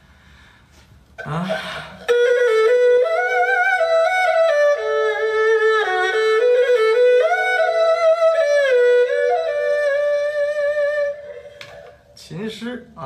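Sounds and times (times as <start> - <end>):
bowed two-string fiddle melody: 2.0 - 11.9.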